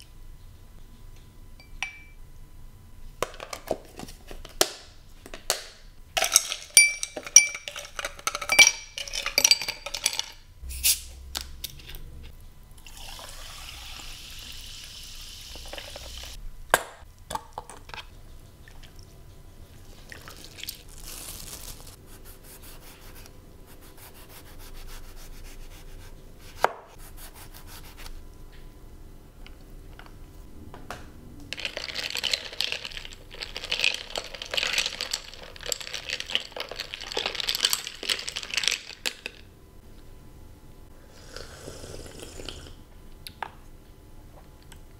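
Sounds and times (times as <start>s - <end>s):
ice cubes clinking into glass: 6.2s - 10.4s, 31.6s - 39.4s
ice rattling in stirred glass: 6.2s - 10.4s, 31.6s - 39.2s
soda water pouring and fizzing: 12.8s - 16.3s.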